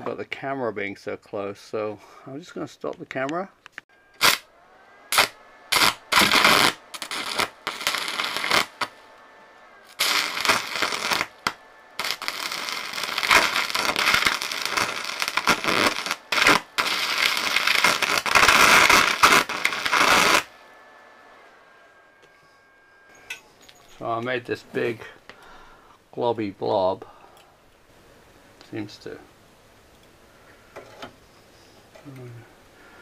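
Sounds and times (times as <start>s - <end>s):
welding arc crackling and hissing: 4.2s - 4.5s, 5.1s - 9.1s, 9.8s - 20.6s.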